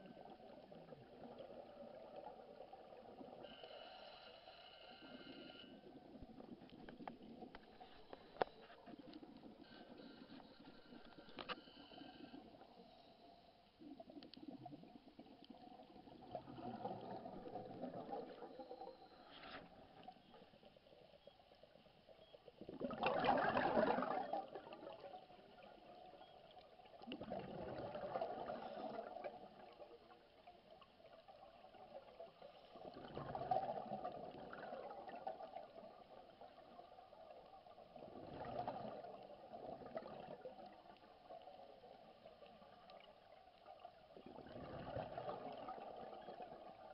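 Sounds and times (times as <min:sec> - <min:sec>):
breath bubbling underwater: 0:22.7 - 0:25.0.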